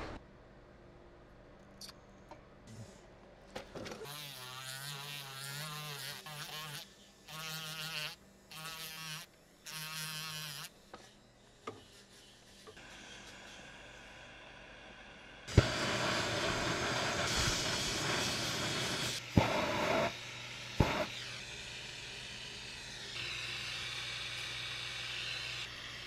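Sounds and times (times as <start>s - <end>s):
rotary tool grinding metal: 4.0s - 14.0s.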